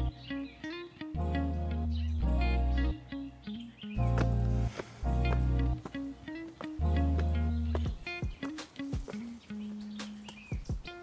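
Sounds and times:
plucked guitar notes: 0.0 - 10.1
deep bass notes: 4.0 - 5.9, 6.8 - 8.0.

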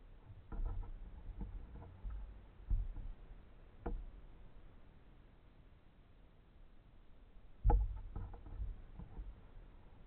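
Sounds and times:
kayak hull knocks and thumps: 0.4 - 3.2, 3.8 - 4.1, 7.6 - 9.4.

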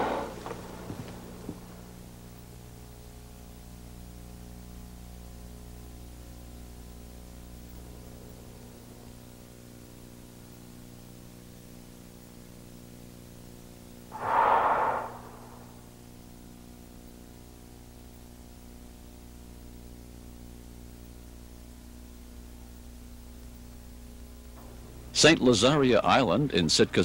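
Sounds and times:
recording hiss: 14.2 - 15.8
whale blowing: 14.2 - 15.8.

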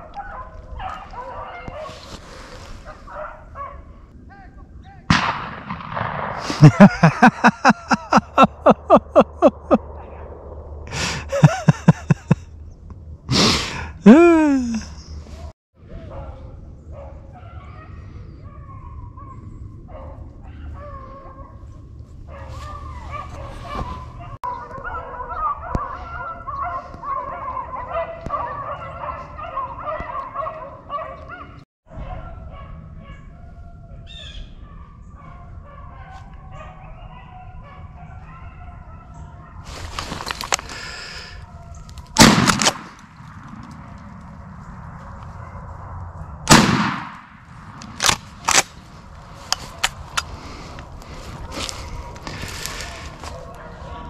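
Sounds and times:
shotgun blast: 5.1 - 6.6, 42.2 - 43.2, 46.5 - 47.4
pack of dogs baying: 16.1 - 33.7, 51.2 - 54.0.

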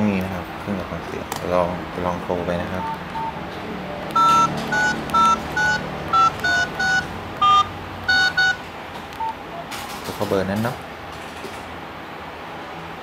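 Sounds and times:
phone keypad two-tone beeps: 4.2 - 8.6.

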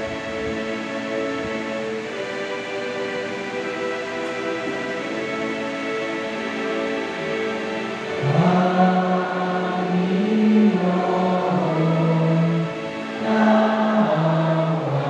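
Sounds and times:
church choir singing: 0.0 - 15.0
sustained instrumental accompaniment: 0.0 - 15.0.

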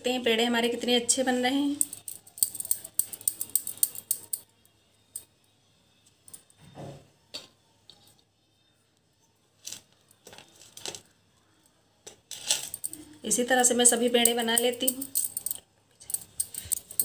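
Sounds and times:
metallic clinking on steel plate: 1.8 - 4.4, 13.8 - 17.0.

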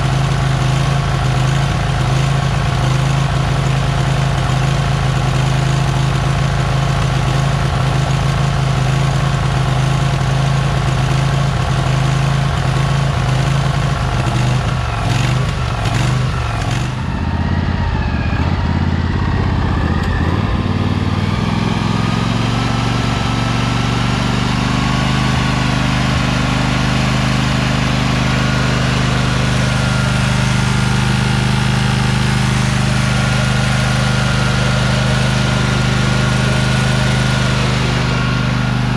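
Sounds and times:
mower engine running: 0.0 - 38.9.

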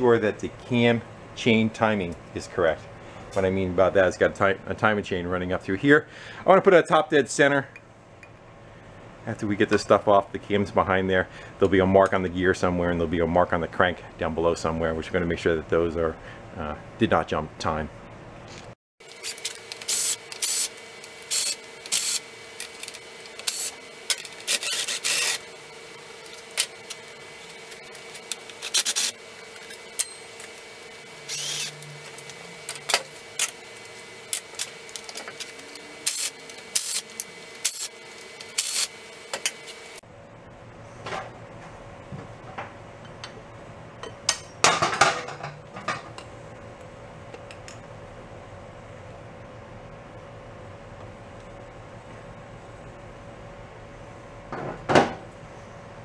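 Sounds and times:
metal parts scraping and clicking: 28.0 - 30.6.

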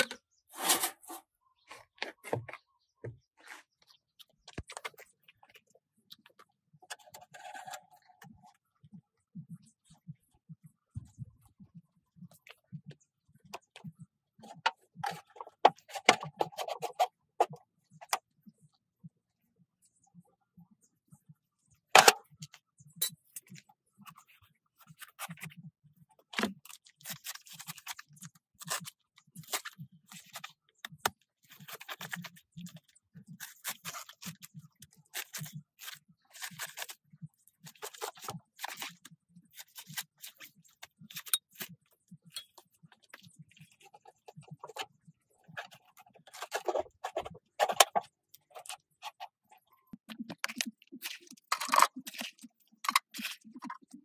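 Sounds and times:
plastic form scraping and crinkling: 0.0 - 8.6, 13.5 - 18.3, 23.2 - 54.0
trowel scraping wet cement: 0.5 - 1.3.

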